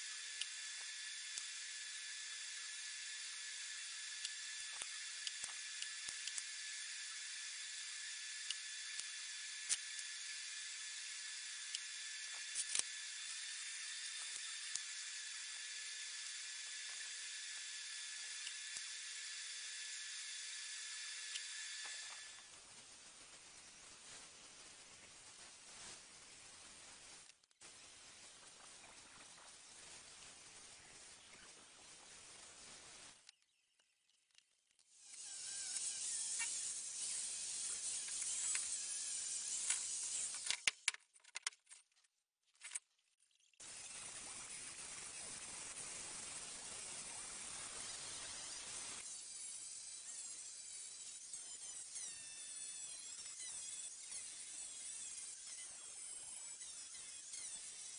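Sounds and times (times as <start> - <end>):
angle grinder on steel: 35.0 - 40.6, 47.5 - 57.9
steady hiss: 43.6 - 50.6.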